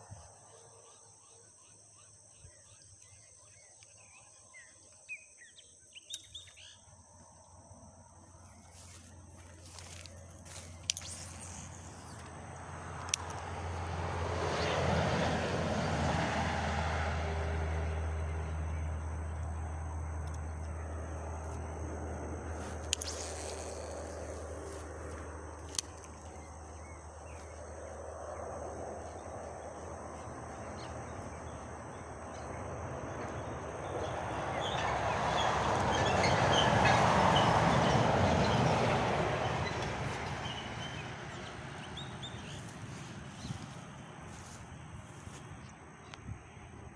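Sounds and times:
truck engine passing: 8.7s - 46.0s.

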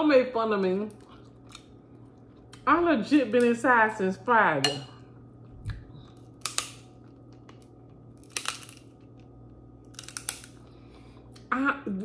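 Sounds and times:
crab meat being chewed: 0.9s - 2.7s, 5.3s - 11.5s.

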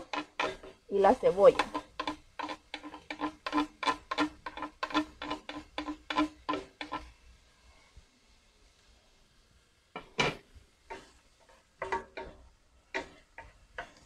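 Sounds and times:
wooden spoon scraping a plate: 0.0s - 7.2s, 10.2s - 14.0s.

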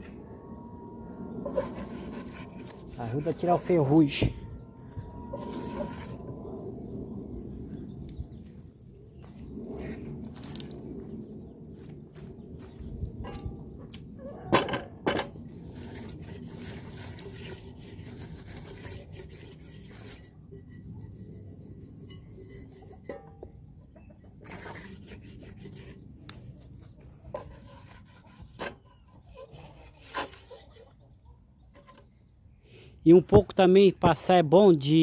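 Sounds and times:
scrubbing cast-iron pot: 1.4s - 10.8s, 14.6s - 23.4s.

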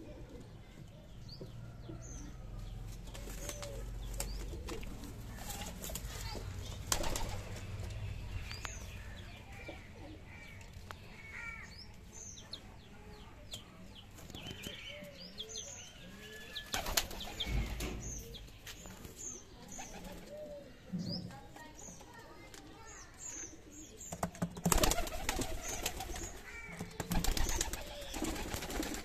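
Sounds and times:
pigeon wings flapping: 3.1s - 7.8s, 24.3s - 29.0s.

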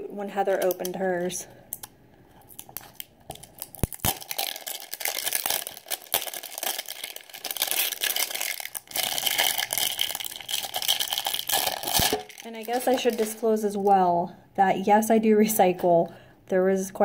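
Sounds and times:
plastic wrap crinkling and tearing: 1.7s - 14.0s.

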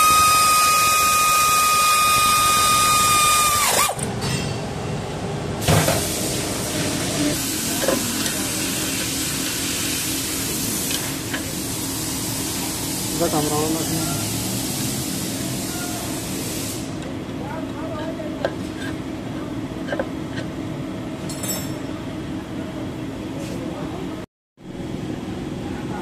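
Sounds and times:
electric ratchet whine: 0.0s - 4.0s.

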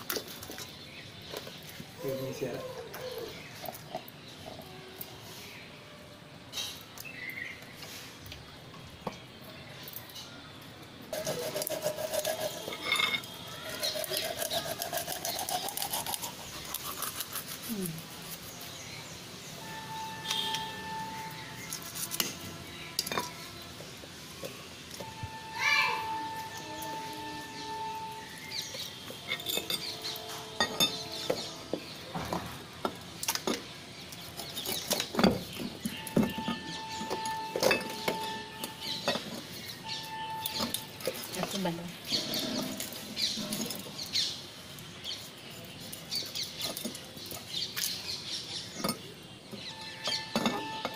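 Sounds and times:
knife scraping fish skin: 11.2s - 18.8s, 21.6s - 22.5s
steady wavering tone: 25.0s - 28.6s.

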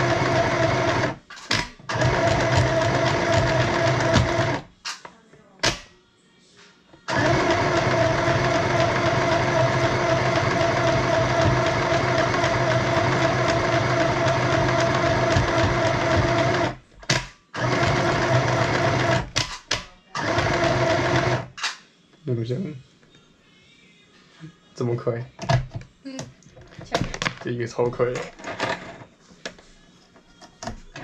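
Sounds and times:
sewing machine stitching: 0.0s - 4.7s, 7.1s - 16.8s, 17.6s - 19.5s, 20.2s - 21.6s.

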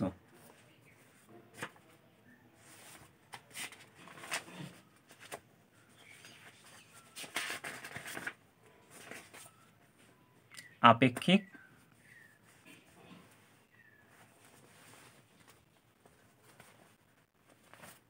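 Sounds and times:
paper pages rustling: 0.4s - 1.9s, 2.6s - 9.6s, 14.1s - 18.0s.

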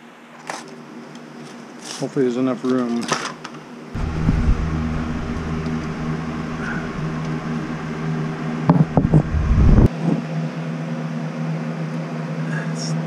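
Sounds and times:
steady mechanical hum: 3.6s - 13.0s
low handling rumble: 4.0s - 9.9s.

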